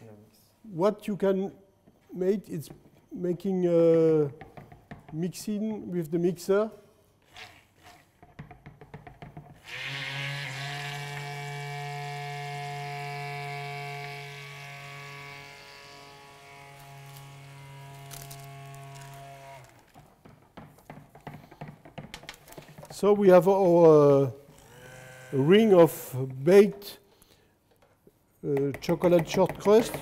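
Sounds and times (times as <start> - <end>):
immersion blender motor hum: 9.6 - 17.2, 24.5 - 25.5.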